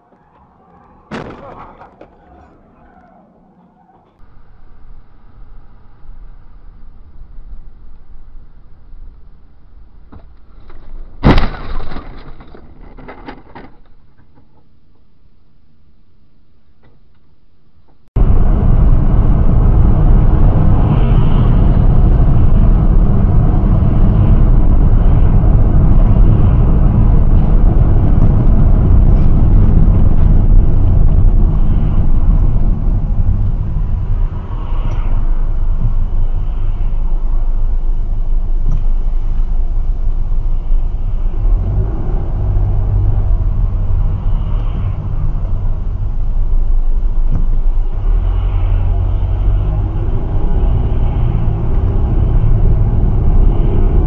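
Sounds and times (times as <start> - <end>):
road and wind rumble in car: 4.0 - 15.1, 17.8 - 54.0
car collision impact: 10.1 - 13.7.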